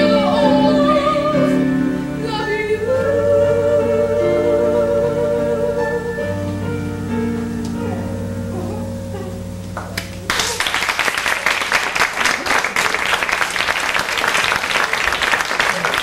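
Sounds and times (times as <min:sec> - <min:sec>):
held music tones: 0:00.0 - 0:10.7
audience applause: 0:09.8 - 0:16.0.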